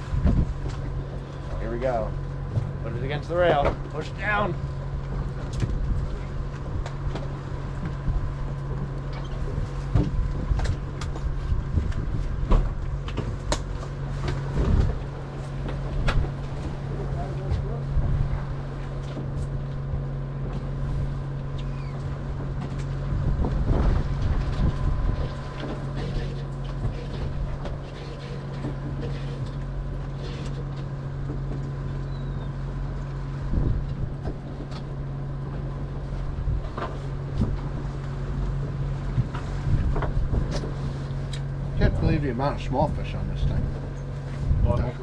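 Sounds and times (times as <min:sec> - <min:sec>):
wind on microphone: 0:00.0 - 0:01.3, 0:09.4 - 0:13.0, 0:14.5 - 0:15.1, 0:21.8 - 0:25.5, 0:33.4 - 0:34.6, 0:38.6 - 0:41.0, 0:43.4 - 0:45.0
boat diesel engine humming: 0:00.0 - 0:45.0.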